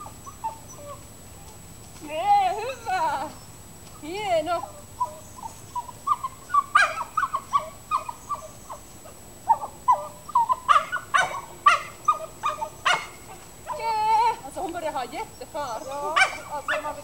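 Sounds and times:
dog yipping and whining: 0.0 - 1.5, 4.6 - 13.8.

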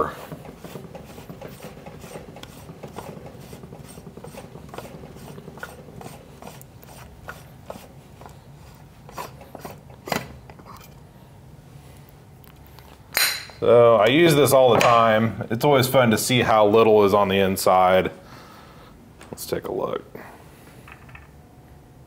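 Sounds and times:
threads rubbing and scraping: 0.0 - 10.0.

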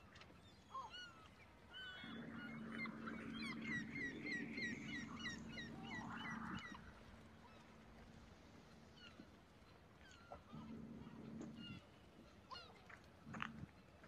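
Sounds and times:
low mechanical hum: 0.4 - 14.0
small birds chirping: 1.8 - 7.7.

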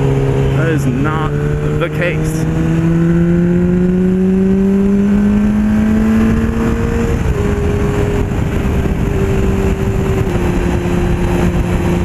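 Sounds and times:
motorcycle engine: 0.0 - 12.0
wind noise: 0.0 - 12.0.

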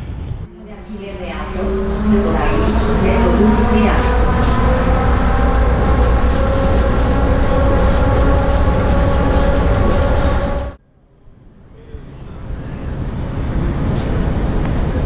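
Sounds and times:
train rumble: 0.0 - 15.0
whining tones: 1.4 - 10.8.

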